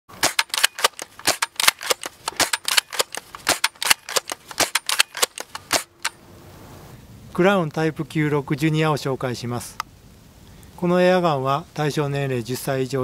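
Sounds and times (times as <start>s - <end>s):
sharp shot-like cracks: 0.1s - 6.2s.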